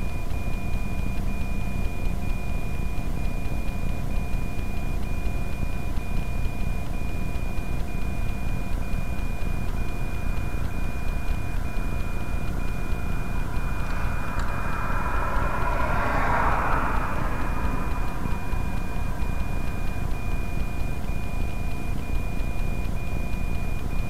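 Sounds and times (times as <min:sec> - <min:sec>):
faint high intermittent tone: 0:10.2 - 0:23.4
low vehicle rumble: 0:10.7 - 0:22.0
car passing: 0:11.5 - 0:21.6.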